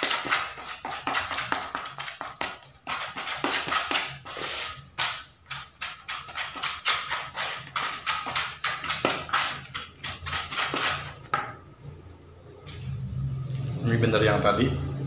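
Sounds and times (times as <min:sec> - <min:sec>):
hands squelching dough: 0:00.0 - 0:11.4.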